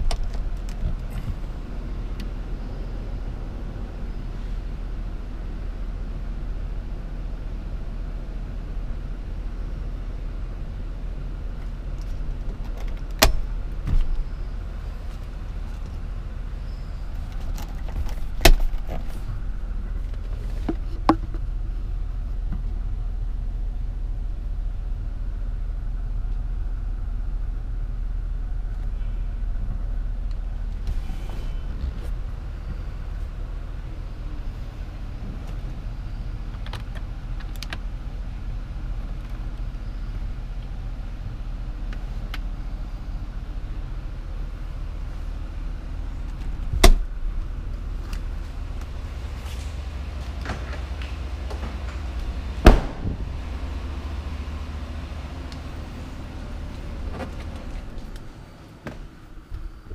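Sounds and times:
low rumble inside car: 0.0s - 59.9s
car door latch click: 13.1s - 14.2s, 46.8s - 47.0s.

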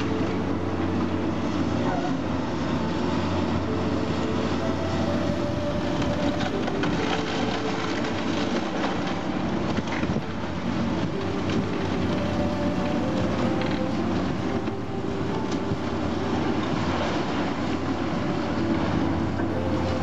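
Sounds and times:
excavator engine running: 0.0s - 20.0s.

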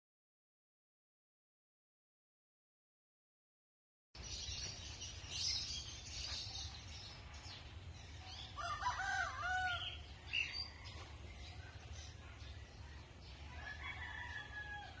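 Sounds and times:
small birds chirping: 4.2s - 15.0s
rooster crowing: 8.6s - 11.0s, 13.5s - 15.0s.

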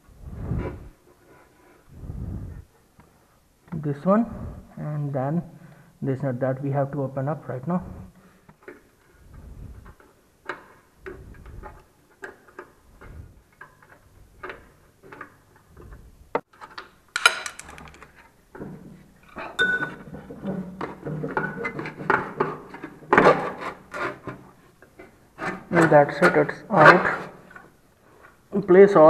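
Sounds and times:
metal tools clinking and scraping: 16.6s - 18.3s, 19.3s - 20.1s.

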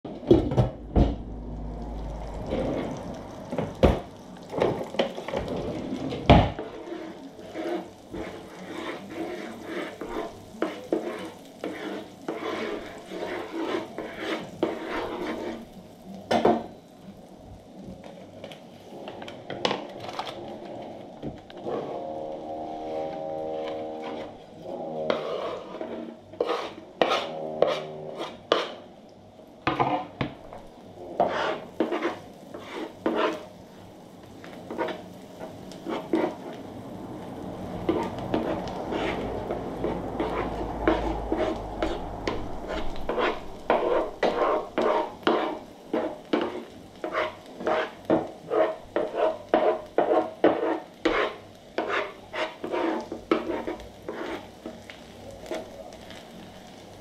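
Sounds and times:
food sizzling in hot oil: 0.3s - 27.4s, 28.2s - 57.0s
spatula scraping a griddle: 1.8s - 16.7s, 18.8s - 28.9s, 29.7s - 56.3s.

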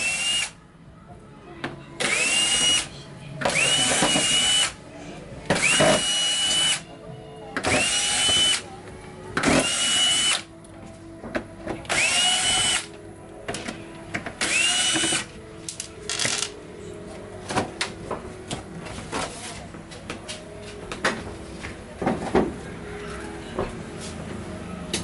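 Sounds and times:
cordless drill motor whine: 0.0s - 0.5s, 2.0s - 2.9s, 3.5s - 4.7s, 5.6s - 6.8s, 7.6s - 8.6s, 9.6s - 10.4s, 11.9s - 12.8s, 14.4s - 15.3s.

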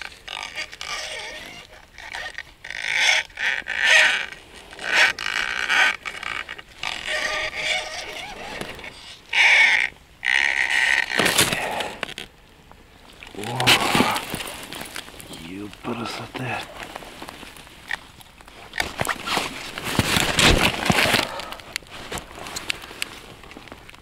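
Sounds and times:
scraping and rustling handling noise: 13.1s - 24.0s.

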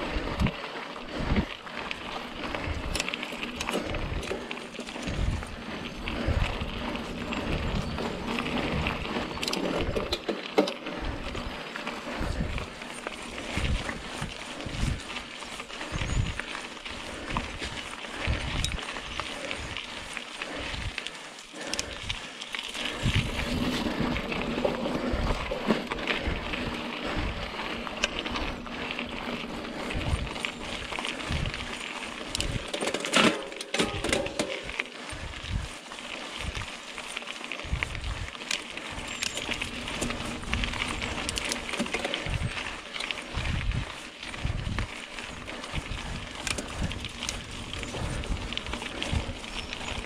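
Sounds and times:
bike tyres on dirt trail: 0.0s - 50.0s
chain and frame rattling: 2.8s - 10.8s, 12.2s - 20.6s, 29.4s - 35.2s, 38.5s - 43.5s.

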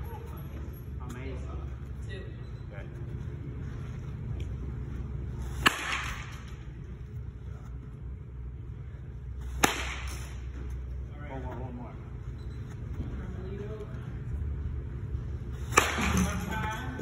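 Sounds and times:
steady low hum: 0.0s - 17.0s
bat hitting ball: 5.5s - 6.6s, 9.6s - 10.4s, 15.6s - 16.6s.

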